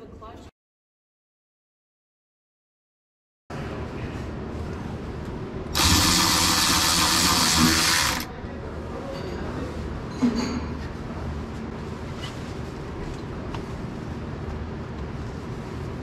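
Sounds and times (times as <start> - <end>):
electric ratchet running: 5.8 - 8.3.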